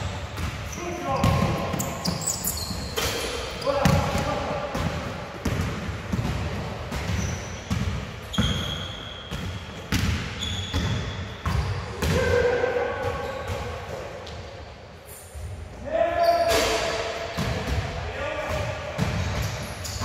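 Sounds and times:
basketball bouncing on gym floor: 0.1 - 12.3
shoe squeaks: 0.8 - 3.8, 7.1 - 11.8, 16.2 - 16.6, 19.4 - 20.0.

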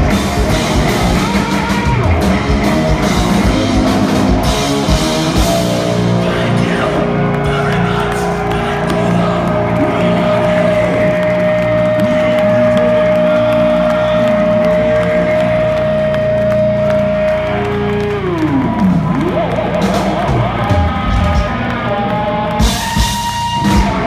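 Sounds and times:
crowd cheering and whooping: 0.0 - 24.0
electric guitar feedback: 0.0 - 24.0.

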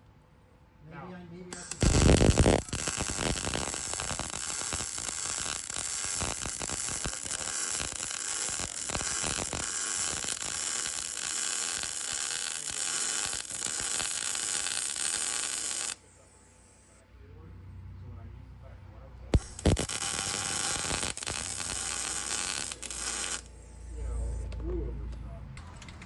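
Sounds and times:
welding arc crackling sizzle: 1.5 - 16.1, 19.3 - 23.6.

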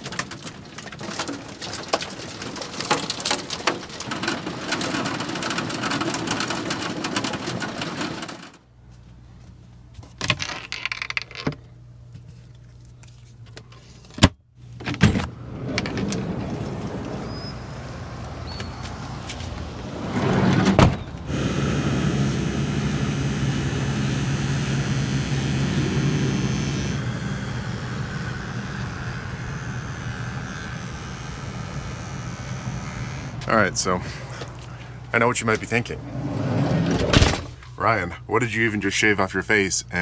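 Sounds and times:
hail on metal roof: 0.0 - 8.5
low steady hum: 21.2 - 40.0.

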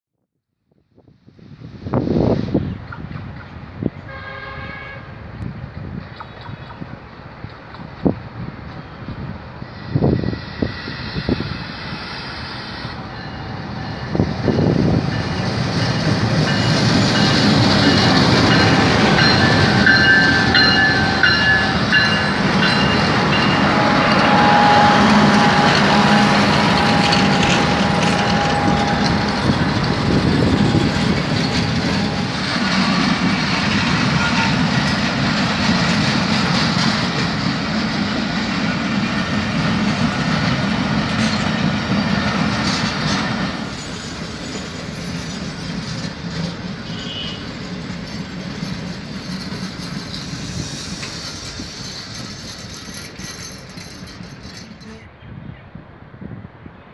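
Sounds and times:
diesel locomotive passing: 1.2 - 56.9
train wheels clacking over rail joints: 25.0 - 55.0.

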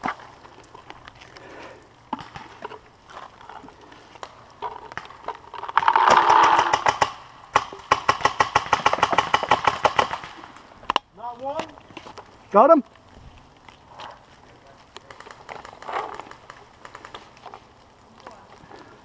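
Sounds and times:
paintball marker firing rapidly: 6.0 - 10.4.

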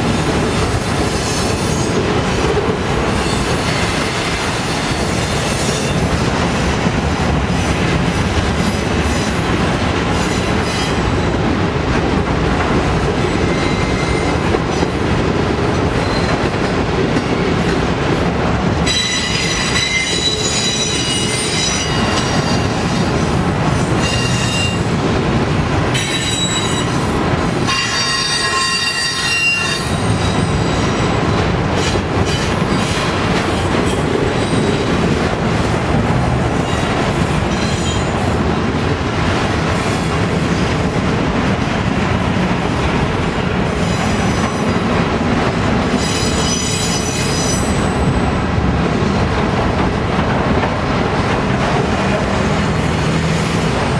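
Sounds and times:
train wheel-on-rail noise: 0.0 - 53.9
high-pitched wheel squeal: 27.7 - 30.0.

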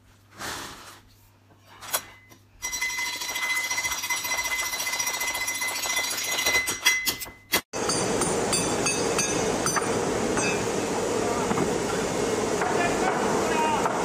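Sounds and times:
steady high whine: 7.8 - 14.0.

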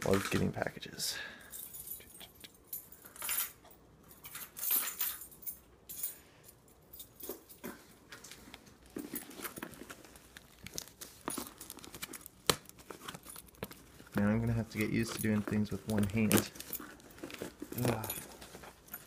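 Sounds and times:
cardboard package handled: 8.8 - 19.0.

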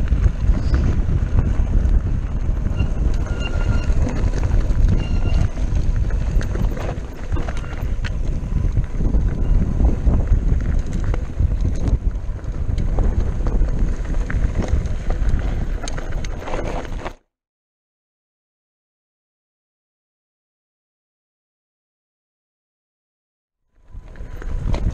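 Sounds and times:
wind buffeting microphone: 0.0 - 17.1, 23.8 - 24.9
bike clicks and rattles over stones: 0.0 - 17.2, 23.8 - 24.9
low rumble of bike riding: 0.0 - 17.2, 23.7 - 24.9.

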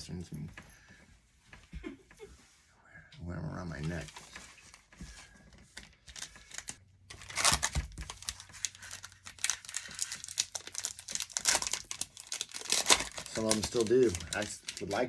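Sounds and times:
foil wrapper crinkling and tearing: 5.8 - 15.0.

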